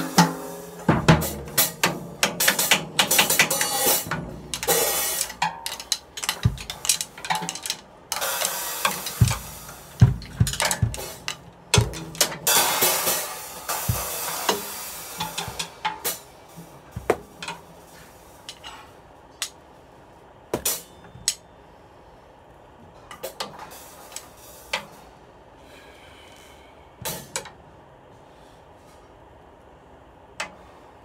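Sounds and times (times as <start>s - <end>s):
drumsticks tapping drums: 0.0s - 17.7s, 20.5s - 21.4s.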